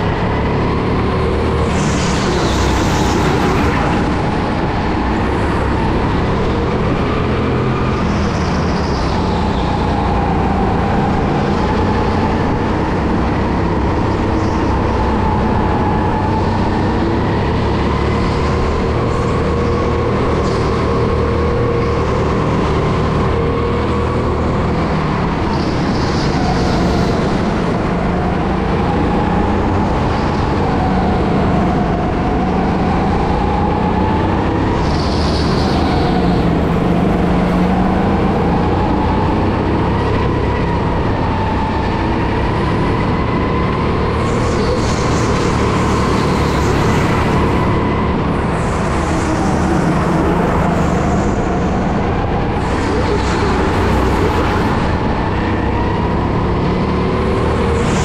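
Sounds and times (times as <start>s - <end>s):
wind rushing: 0.0s - 7.8s.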